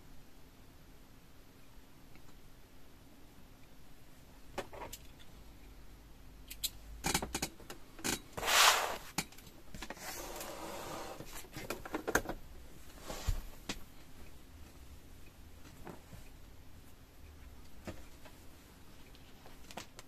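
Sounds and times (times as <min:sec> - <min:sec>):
small clicks and knocks: 0:06.5 - 0:08.3
fabric rustling and dragging: 0:08.4 - 0:09.1, 0:09.9 - 0:11.5, 0:12.8 - 0:13.7.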